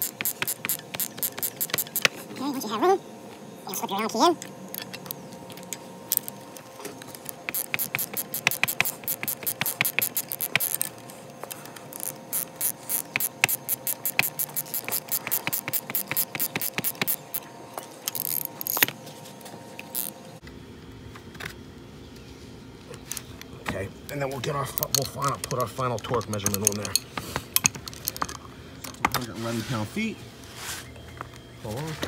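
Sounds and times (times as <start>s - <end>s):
ratchet wrench clicking: 0.0s - 2.2s, 7.3s - 10.9s, 11.9s - 17.4s, 18.1s - 18.9s, 19.9s - 20.1s, 24.7s - 27.0s.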